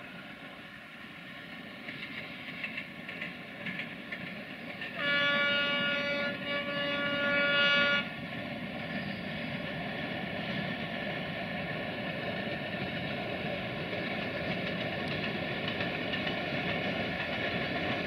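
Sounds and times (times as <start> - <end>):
locomotive horn blast: 5.0 - 8.1.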